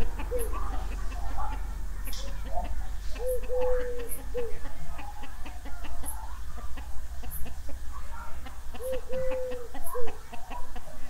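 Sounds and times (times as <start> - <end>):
hen drawn-out call: 0.0 - 7.4, 8.8 - 10.2
hens clucking: 0.0 - 11.0.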